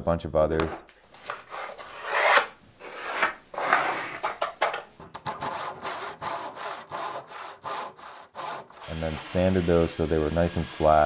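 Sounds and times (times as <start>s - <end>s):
handsaw cutting plywood: 5.3s - 11.0s.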